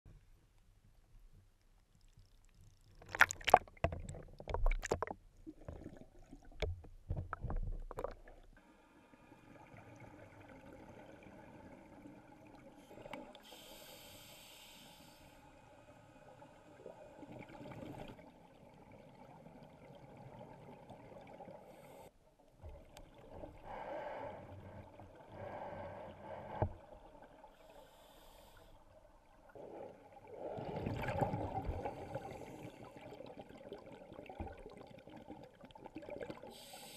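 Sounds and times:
low steady underwater hiss: 0.1s - 3.8s, 8.3s - 36.9s
underwater knocks and bumps: 3.0s - 8.5s
scuba exhaust bubbles: 16.7s - 22.0s, 29.4s - 36.9s.

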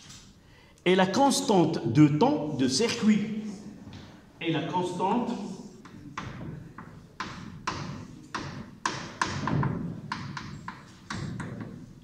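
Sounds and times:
chalk tapping and scraping: 5.3s - 12.0s.

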